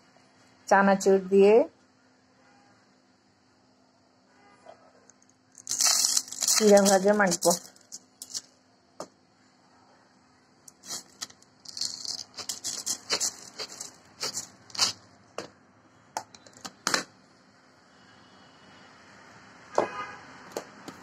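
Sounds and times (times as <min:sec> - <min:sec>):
dry flakes rattling onto a plate: 0:05.6 - 0:08.5, 0:10.7 - 0:15.0.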